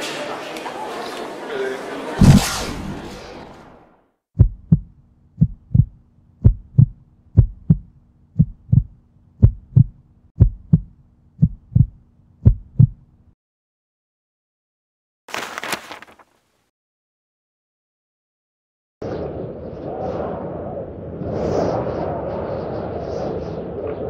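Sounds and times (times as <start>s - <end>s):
heartbeat thumps: 4.4s - 13.1s.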